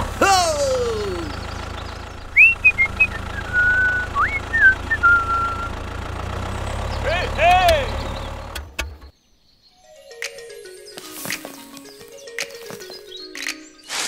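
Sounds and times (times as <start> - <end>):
toy tractor engine hum: 0.0 - 9.0
whistled notes: 2.3 - 5.8.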